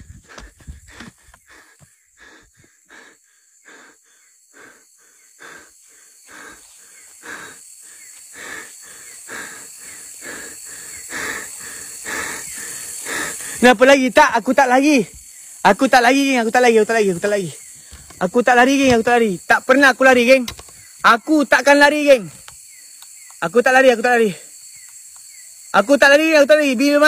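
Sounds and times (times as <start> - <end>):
steps rustling through undergrowth: 0.0 - 1.4
person breathing: 0.0 - 13.7
night insects humming: 0.0 - 27.0.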